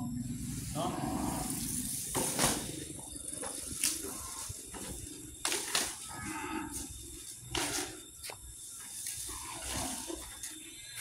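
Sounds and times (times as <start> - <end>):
rustling grass and leaves: 0.0 - 11.0
elephant low call: 6.0 - 7.0.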